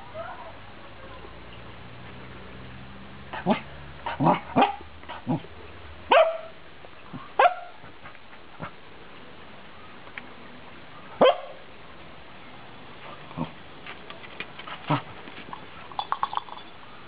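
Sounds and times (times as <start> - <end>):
dog barking: 3.4 - 5.4, 6.1 - 6.6, 7.4 - 7.8, 11.2 - 11.6.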